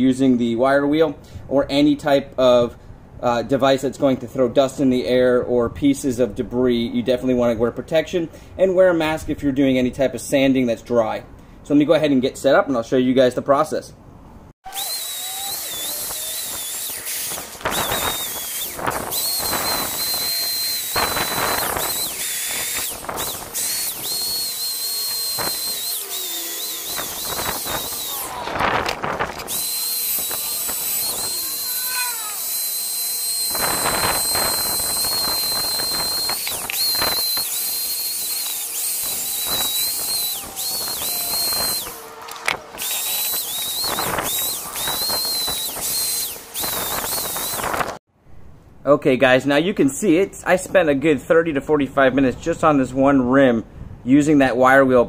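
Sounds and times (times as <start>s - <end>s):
wire wheel grinder whining: 14.6s - 48.0s.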